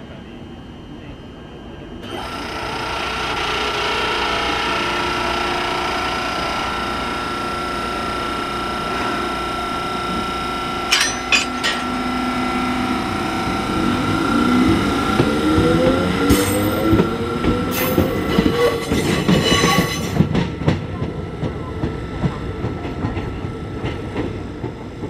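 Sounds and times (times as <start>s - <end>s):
diesel generator engine running: 11.5s - 18.2s.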